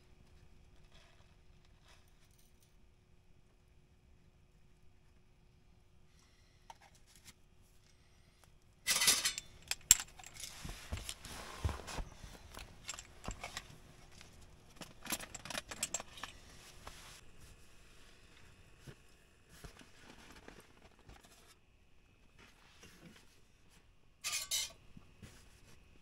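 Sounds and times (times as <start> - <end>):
rustling: 8.9 - 21.6.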